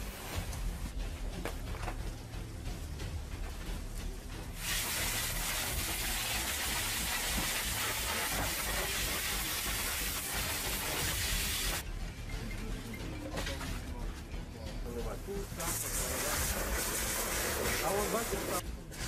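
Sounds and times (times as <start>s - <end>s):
fire hose spraying water: 4.6s - 11.8s, 15.6s - 18.6s.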